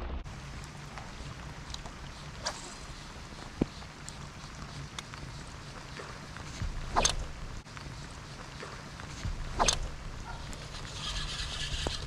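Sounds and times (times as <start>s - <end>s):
short sharp swishes: 6.6s - 7.4s, 9.5s - 11.6s.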